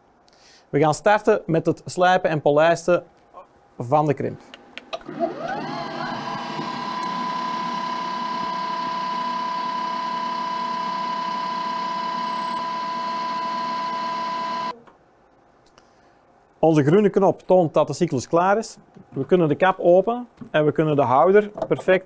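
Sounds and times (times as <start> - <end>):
grinding machine motor whine: 5.0 - 14.7.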